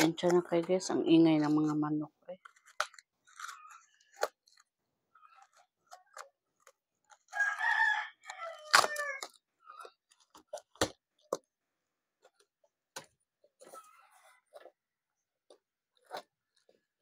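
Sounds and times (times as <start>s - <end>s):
rooster crowing: 7.3s - 9.3s.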